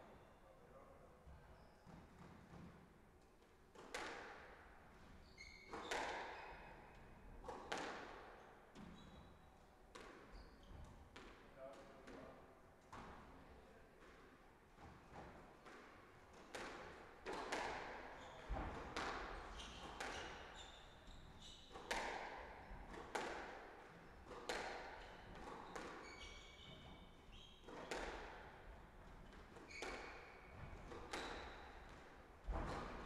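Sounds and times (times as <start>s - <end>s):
squash ball hits echoing: 16.5s - 20.3s, 21.7s - 23.7s, 24.3s - 26.0s, 27.7s - 28.4s, 29.7s - 33.0s
shoes squeaking on wooden floor: 25.6s - 27.6s.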